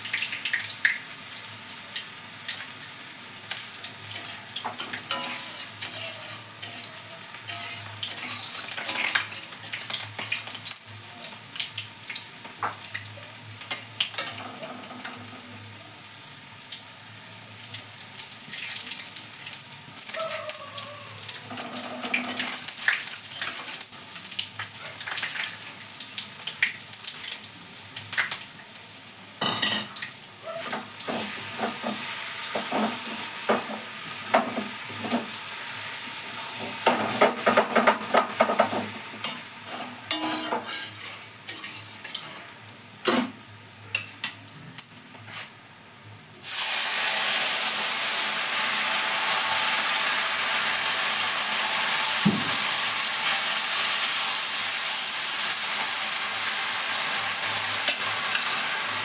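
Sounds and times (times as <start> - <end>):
food sizzling: 0.0 - 59.0
spatula scraping metal pan: 5.1 - 9.5, 39.2 - 42.4.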